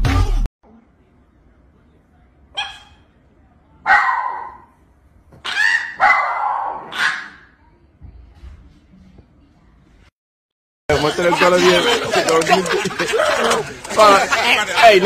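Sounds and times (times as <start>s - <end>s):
small dog yelping and yowling: 5.4s - 7.4s.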